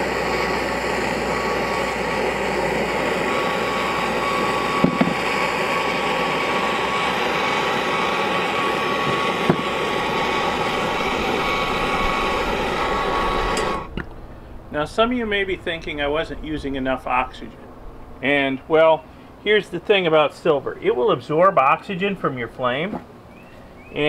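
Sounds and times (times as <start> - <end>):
torch flame hissing: 0.0 - 14.0.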